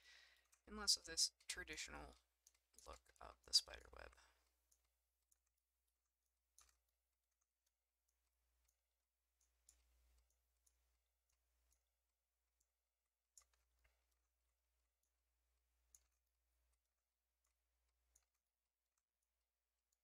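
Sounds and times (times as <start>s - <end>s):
computer mouse clicks: 6.5s - 8.8s, 9.4s - 12.7s, 13.3s - 15.2s, 15.8s - 19.0s.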